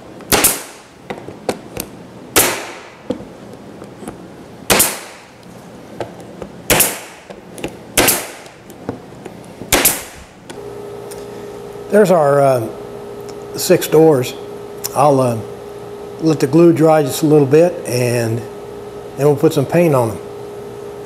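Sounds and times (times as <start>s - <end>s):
pneumatic stapler shots: 0.3s - 0.9s, 2.4s - 3.0s, 4.7s - 5.3s, 6.7s - 7.3s, 8.0s - 8.6s, 9.7s - 10.3s.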